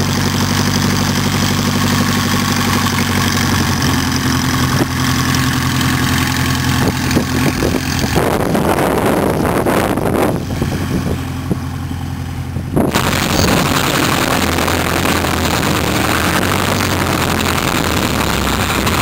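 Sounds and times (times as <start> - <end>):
propeller plane engine running: 0.0 - 19.0
propeller wash and wind hiss: 1.7 - 19.0.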